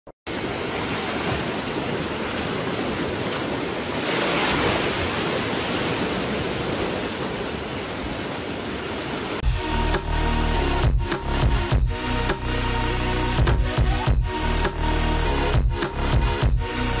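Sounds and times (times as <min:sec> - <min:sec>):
sea waves washing on rocks: 0:00.3 - 0:09.4.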